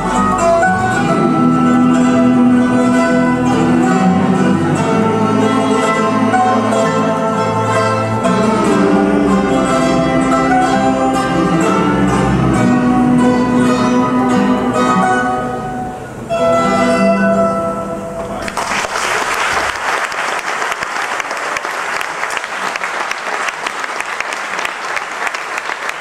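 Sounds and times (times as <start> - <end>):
plucked string ensemble: 0.0 - 18.6
audience applause: 18.4 - 26.0.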